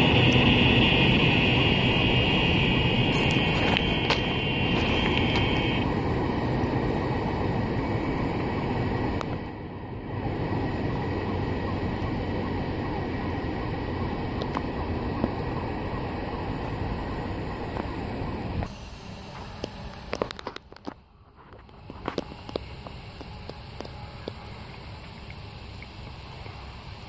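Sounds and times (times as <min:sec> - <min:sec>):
high steady tone: 0:00.0 - 0:09.4
train wheels rumbling on rails: 0:00.0 - 0:25.2.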